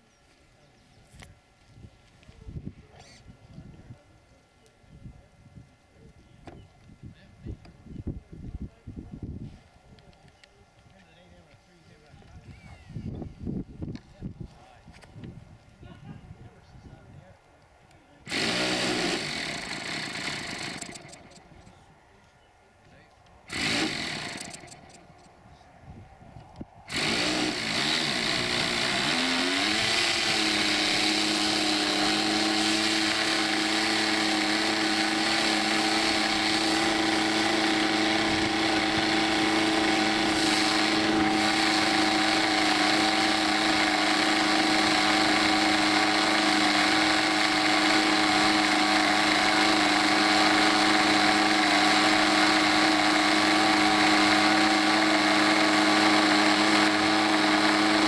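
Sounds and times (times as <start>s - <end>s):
electric starter spinning: 18.3s - 21.7s, 23.5s - 25.3s, 26.9s - 58.0s
model plane engine idling: 18.3s - 21.8s, 23.5s - 25.3s, 26.9s - 58.0s.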